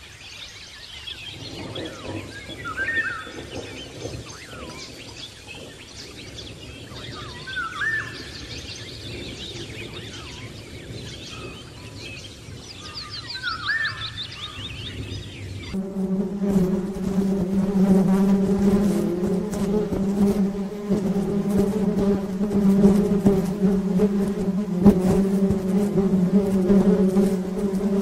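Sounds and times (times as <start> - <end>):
birds chirping: 0.0 - 28.0
whistled bird call: 7.1 - 8.7, 12.8 - 14.7.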